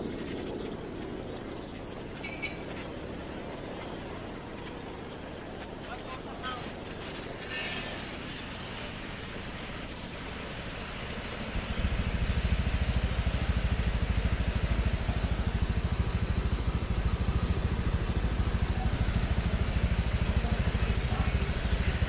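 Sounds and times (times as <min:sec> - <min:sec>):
street ambience hiss: 0:00.0 - 0:22.0
vehicle engine throbbing: 0:06.7 - 0:22.0.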